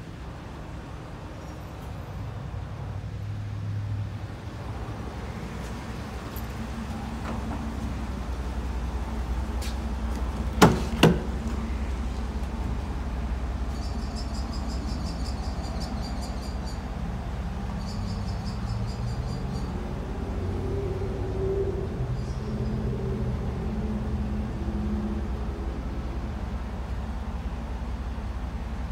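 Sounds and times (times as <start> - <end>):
tailgate metal clunks: 10.4 - 11.5.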